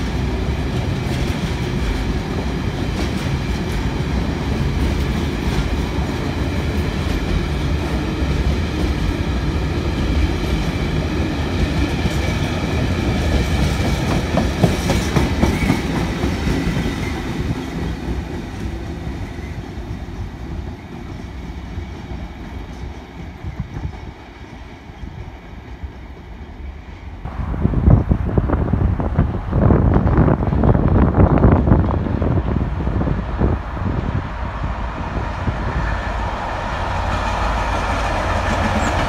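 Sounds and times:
sharp clicks of train wheels: 0:00.0 - 0:19.1
freight train wheels on rails: 0:00.0 - 0:39.0.

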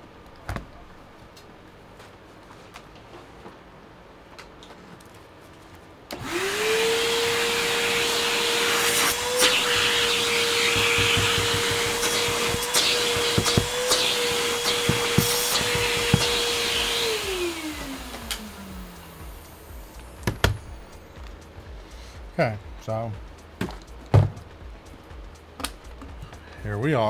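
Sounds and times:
vacuum cleaner running: 0:06.1 - 0:21.2.

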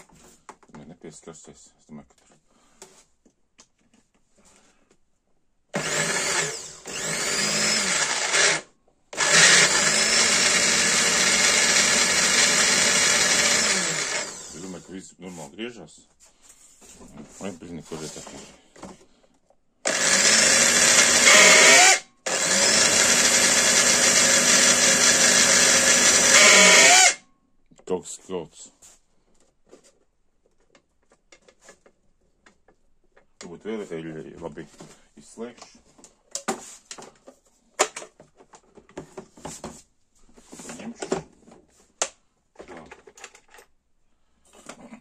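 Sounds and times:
blender motor whirring: 0:05.8 - 0:14.9, 0:19.9 - 0:27.2
rummaging in plastic toolbox: 0:29.3 - 0:43.8
plastic parts set down: 0:42.5 - 0:43.7.

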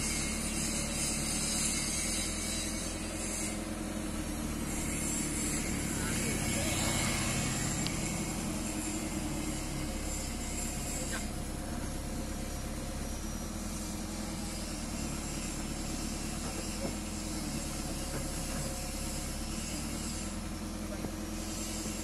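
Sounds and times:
diesel engine idling: 0:00.1 - 0:22.0
motorcycle passing: 0:05.5 - 0:10.0.

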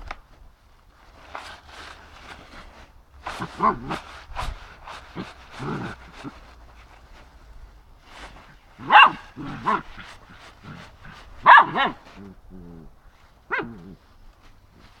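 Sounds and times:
dog growling: 0:03.4 - 0:04.2, 0:04.8 - 0:06.6, 0:08.8 - 0:14.1
dog barking in sharp yaps: 0:08.8 - 0:09.8, 0:11.4 - 0:12.0, 0:13.5 - 0:13.9.

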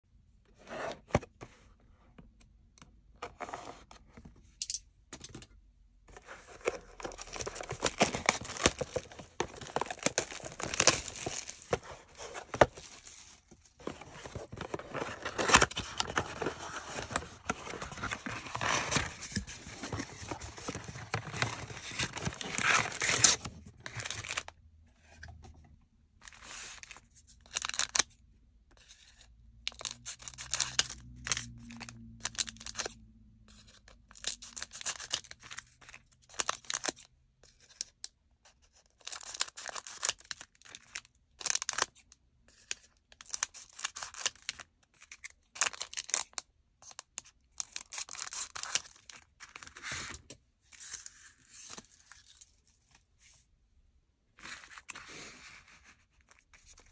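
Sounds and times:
cardboard scraping and sliding: 0:00.6 - 0:01.3
foil packs crinkling: 0:06.6 - 0:11.8.

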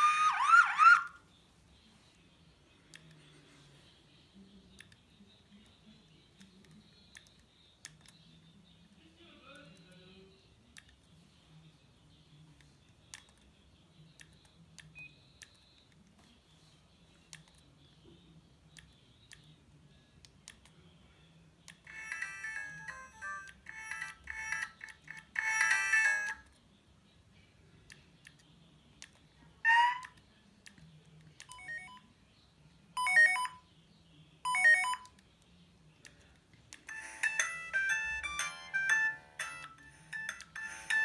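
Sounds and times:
electronic ringtone melody: 0:00.0 - 0:01.2, 0:21.9 - 0:26.4, 0:31.5 - 0:32.0, 0:33.0 - 0:33.6, 0:34.5 - 0:35.1, 0:36.9 - 0:41.0
alert-tone chirps: 0:31.5 - 0:32.1, 0:33.0 - 0:33.7, 0:34.5 - 0:35.2, 0:36.9 - 0:41.0.

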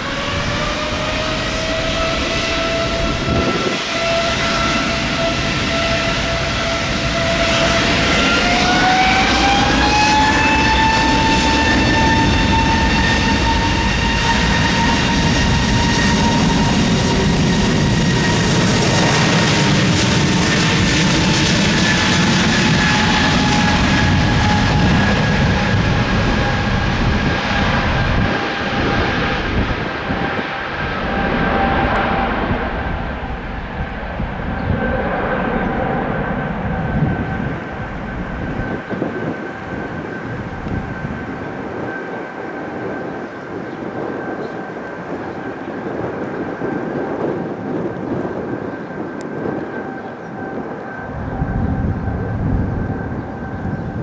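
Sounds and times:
jet engine whine: 0:00.0 - 0:54.0
deep engine rumble: 0:11.8 - 0:43.2, 0:45.3 - 0:54.0.

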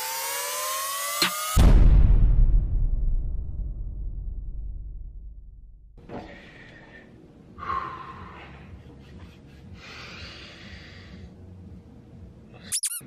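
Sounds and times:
man breathing heavily: 0:06.1 - 0:11.6
man gasping sharply: 0:07.6 - 0:08.5.

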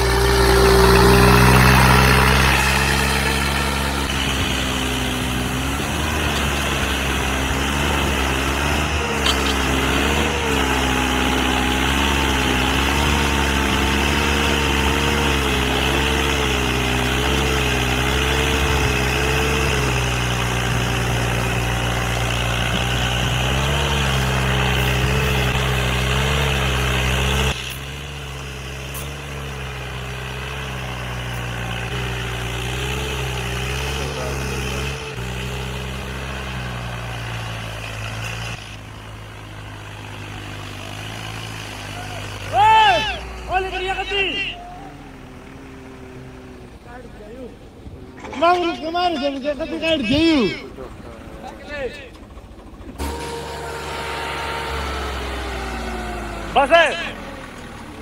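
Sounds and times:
tractor diesel engine labouring: 0:00.0 - 0:58.0.

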